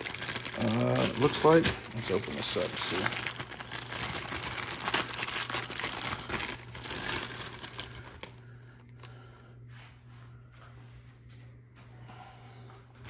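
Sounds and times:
plastic bag crinkling: 0.0s - 8.8s.

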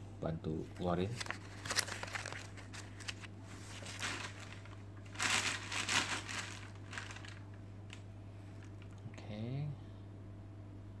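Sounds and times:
plastic bag crinkling: 1.1s - 9.0s.

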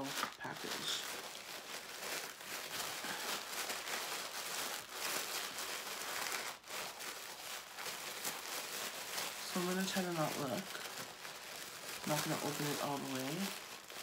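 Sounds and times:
tissue paper crinkling: 0.0s - 14.0s.

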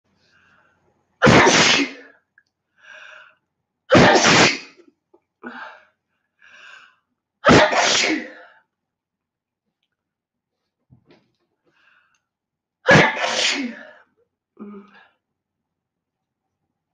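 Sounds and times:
woman sneezing: 1.2s - 2.1s, 3.9s - 4.8s, 7.4s - 8.4s, 12.9s - 14.0s.

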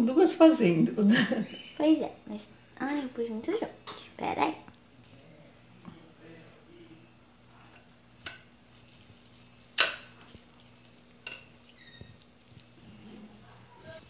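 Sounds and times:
metal spoons clinking on glass bowl: 7.6s - 9.0s, 9.7s - 11.8s.

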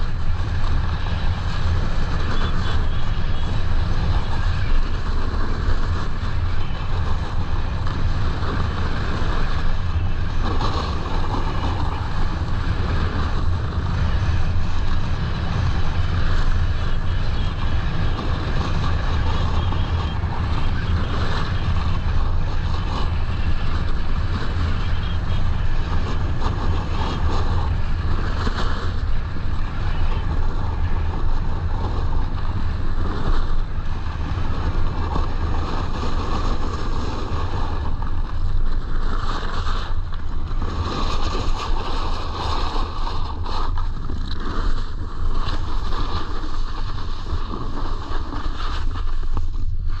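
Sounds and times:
snowboard sliding over snow: 0.0s - 50.0s
wind buffeting microphone: 0.0s - 50.0s.

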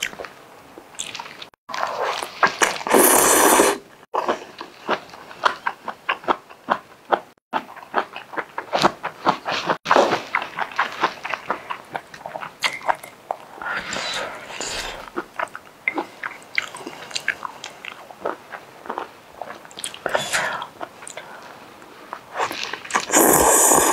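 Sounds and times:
wet chewing and lip smacks: 0.9s - 1.4s, 15.1s - 20.1s
noodle slurp: 1.7s - 4.3s, 22.4s - 23.9s.

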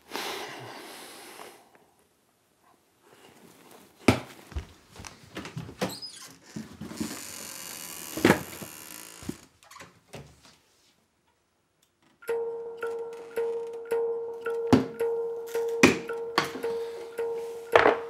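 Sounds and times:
knocks and clicks: 12.2s - 18.0s
music: 12.3s - 18.0s.

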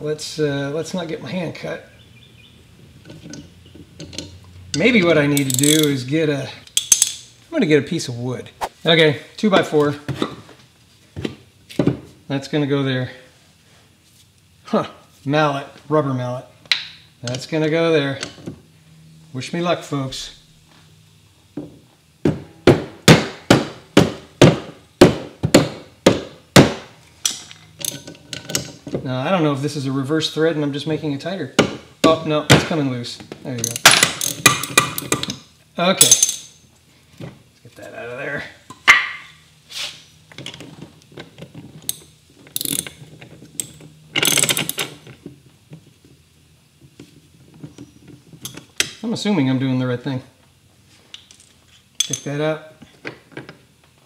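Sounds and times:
metallic clicks and rattles: 3.0s - 6.0s.

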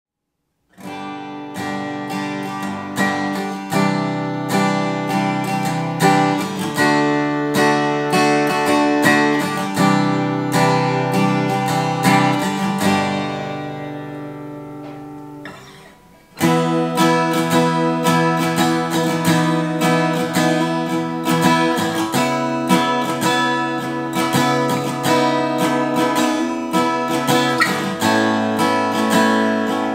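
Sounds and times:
acoustic guitar chords: 0.5s - 29.9s.

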